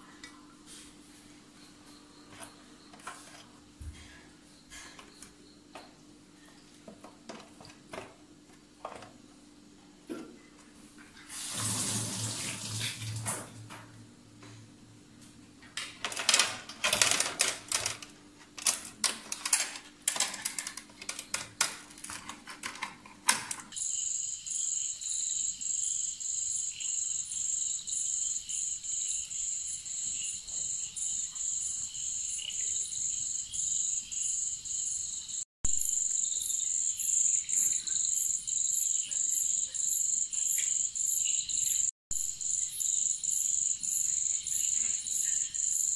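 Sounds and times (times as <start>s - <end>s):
clicks and knocks from handling: 15.7s - 23.8s
crickets chirring: 23.8s - 45.9s.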